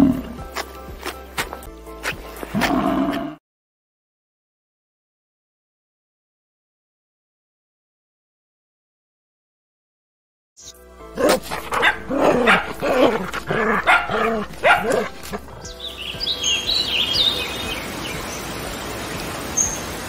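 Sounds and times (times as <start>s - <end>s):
animal yelps or barks: 11.2s - 15.7s
high bird chirps: 15.5s - 18.5s.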